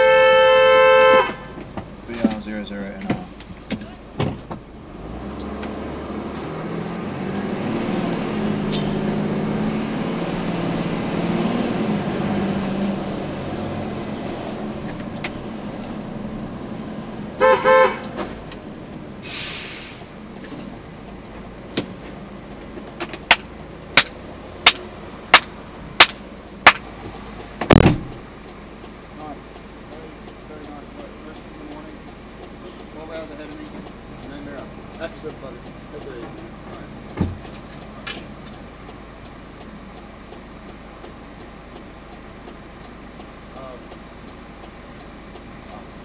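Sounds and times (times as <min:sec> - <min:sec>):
horn blasts: 0:00.0 - 0:01.6, 0:17.4 - 0:18.3
truck engine accelerating: 0:01.2 - 0:46.0
brief hiss: 0:19.2 - 0:20.6.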